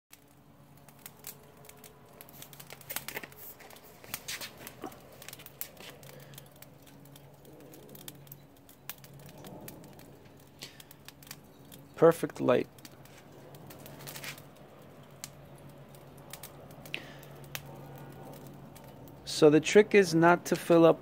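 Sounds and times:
charcoal crackling and popping: 0.1s - 21.0s
steady low hum: 0.1s - 21.0s.

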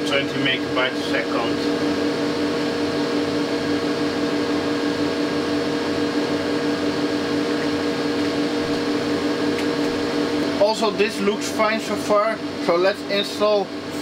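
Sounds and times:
constant hum: 0.0s - 14.0s
server fans whirring: 0.0s - 14.0s.

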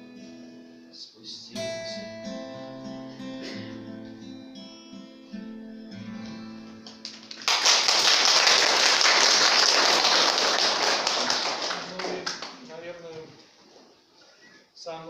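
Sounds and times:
acoustic guitar ringing: 1.5s - 7.2s
audience applause: 7.0s - 12.7s.

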